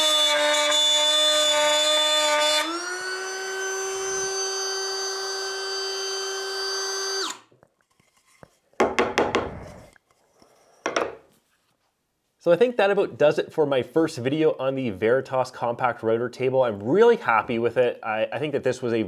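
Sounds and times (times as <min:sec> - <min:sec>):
router motor whining: 0:00.0 - 0:07.4
plywood scraping: 0:07.8 - 0:11.9.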